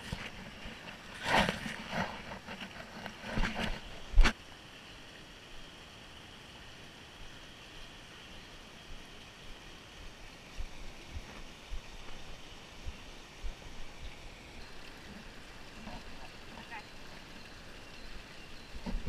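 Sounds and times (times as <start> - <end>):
camera rustling against rock: 0.0 - 4.4
stream flowing over rocks: 0.0 - 19.0.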